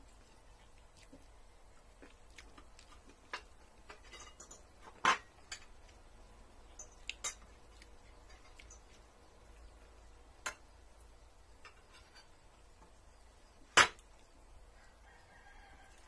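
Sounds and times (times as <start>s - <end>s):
cutlery clinking on plates: 3.2s - 5.8s.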